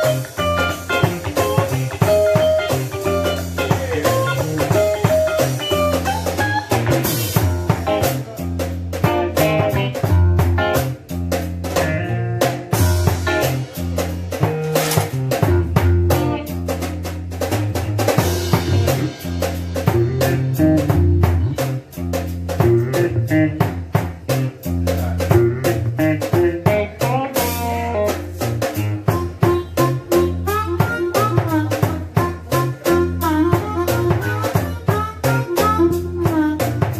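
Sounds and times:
drum kit steady beat: 0:00.0 - 0:36.9
electric guitar: 0:00.0 - 0:36.9
low bass line: 0:15.1 - 0:36.9.

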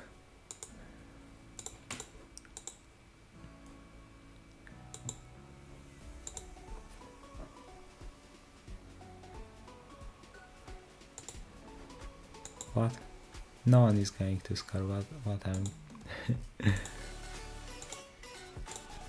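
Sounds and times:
faint background music: 0:00.0 - 0:19.0
computer mouse clicks: 0:00.5 - 0:00.8, 0:01.6 - 0:02.8, 0:04.9 - 0:05.3, 0:06.2 - 0:06.5, 0:11.2 - 0:11.4, 0:12.4 - 0:13.0, 0:15.5 - 0:15.8, 0:17.7 - 0:18.1, 0:18.7 - 0:19.0.

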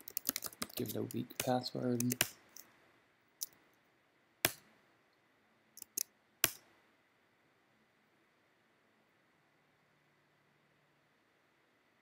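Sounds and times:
computer mouse clicks: 0:00.0 - 0:02.7, 0:05.8 - 0:06.6.

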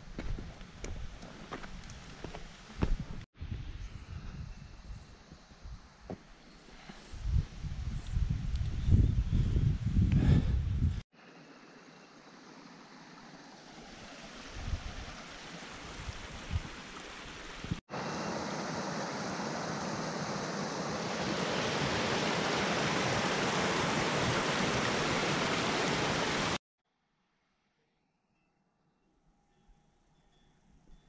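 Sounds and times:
stream rushing over rocks: 0:12.3 - 0:26.6.

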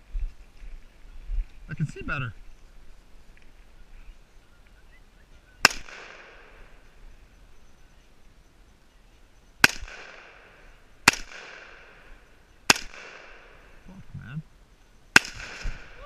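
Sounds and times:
rifle shots with echo: 0:05.6 - 0:06.8, 0:09.6 - 0:13.8, 0:15.1 - 0:16.0.

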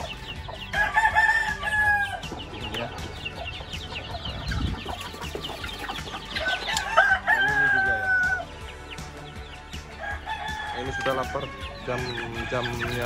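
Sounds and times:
chickens chirping and clucking: 0:00.0 - 0:13.0
rooster crowing: 0:00.7 - 0:02.2, 0:06.4 - 0:08.5, 0:10.0 - 0:12.8.

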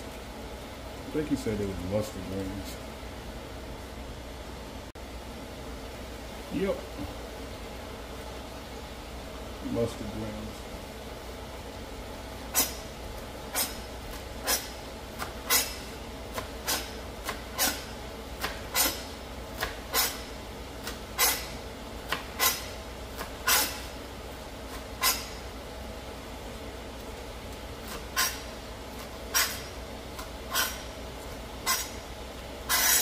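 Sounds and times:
steady background hum: 0:00.0 - 0:33.0
knife chopping on cutting board: 0:15.2 - 0:19.0, 0:19.6 - 0:20.2.

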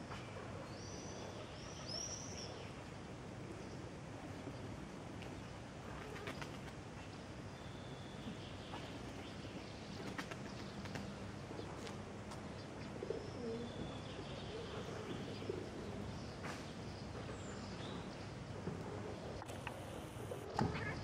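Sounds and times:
pigeon cooing: 0:13.0 - 0:13.7.

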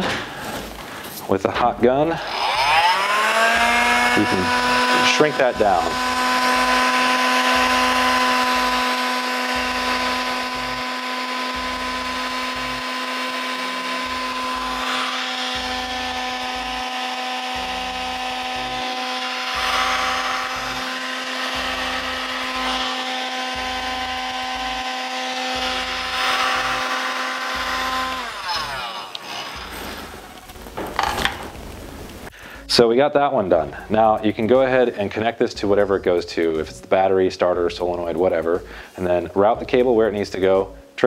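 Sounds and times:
heat gun fan whine: 0:01.7 - 0:32.2.

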